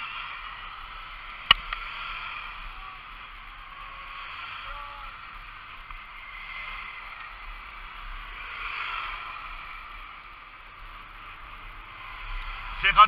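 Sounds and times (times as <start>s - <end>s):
bike tyre noise on tarmac: 0.0s - 13.0s
wind rushing over microphone: 0.0s - 13.0s.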